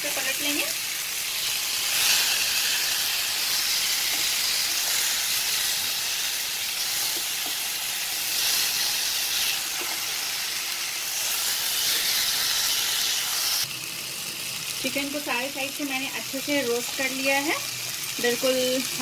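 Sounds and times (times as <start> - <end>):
chicken sizzling in a hot pan: 0.0 - 19.0.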